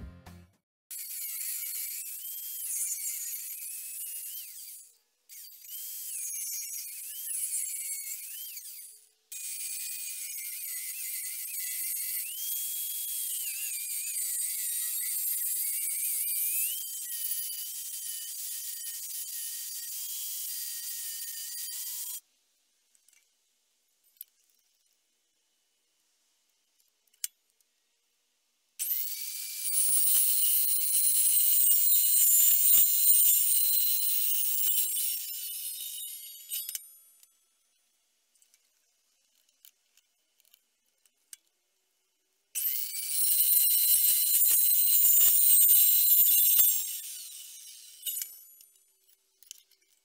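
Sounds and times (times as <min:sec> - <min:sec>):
angle grinder cutting steel: 0:00.9 - 0:22.2, 0:28.8 - 0:37.3, 0:42.6 - 0:50.0
chop saw high whine: 0:00.9 - 0:22.2, 0:28.8 - 0:37.3, 0:42.6 - 0:49.2.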